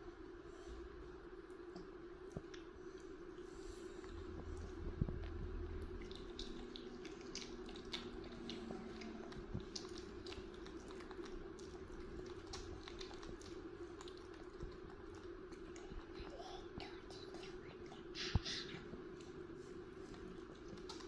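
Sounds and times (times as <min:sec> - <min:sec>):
steady low hum: 0:00.0 - 0:21.0
wet eating smacks and clicks: 0:01.5 - 0:21.0.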